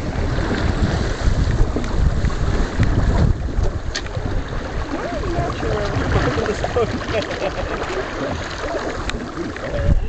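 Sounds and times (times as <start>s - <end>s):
water washing against hull: 0.0s - 10.0s
wind buffeting microphone: 0.0s - 10.0s.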